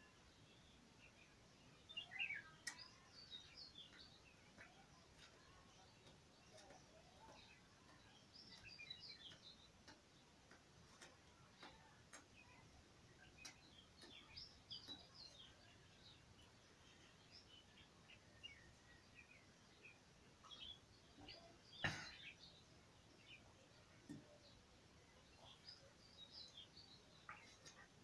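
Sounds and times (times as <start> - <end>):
faint bird chirps: 0.0 - 28.0
faint clicks: 2.5 - 16.2, 25.4 - 28.0.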